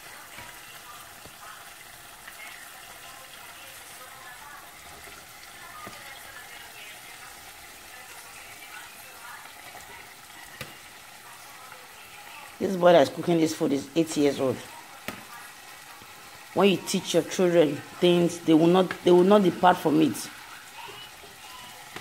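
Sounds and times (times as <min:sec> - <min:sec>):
sauce sizzling in a pot: 0:00.0 - 0:22.0
wooden spoon stirring: 0:17.8 - 0:22.0.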